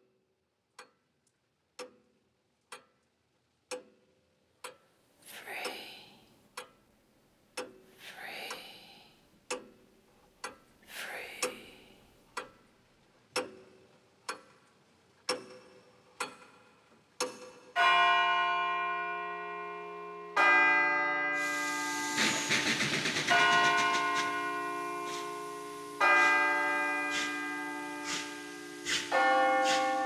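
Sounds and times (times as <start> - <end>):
clock ticking: 0.7 - 1.0, 1.7 - 19.7, 21.4 - 30.0
deep bell striking: 22.5 - 30.0.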